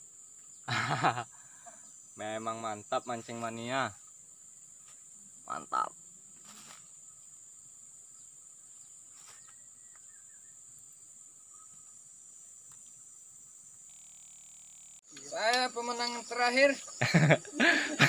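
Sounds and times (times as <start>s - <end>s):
insects droning: 0.0s - 18.0s
faint rustles: 6.4s - 7.0s, 8.8s - 10.0s.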